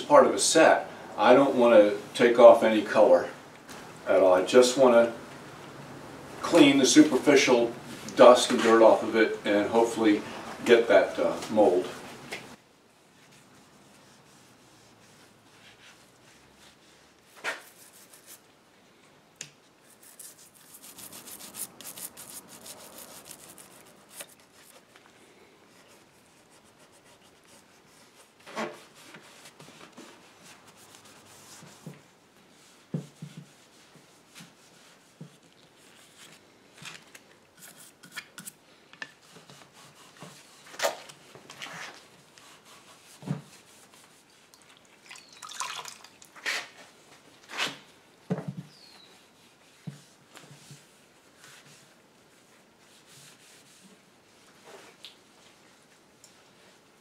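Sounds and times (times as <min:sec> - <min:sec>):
damp rag rubbing wood: 0:13.1 - 0:18.4, 0:19.8 - 0:24.9, 0:25.7 - 0:36.4, 0:39.2 - 0:40.7, 0:41.7 - 0:44.6, 0:48.7 - 0:54.6
water dripping into plastic bucket: 0:44.5 - 0:46.4.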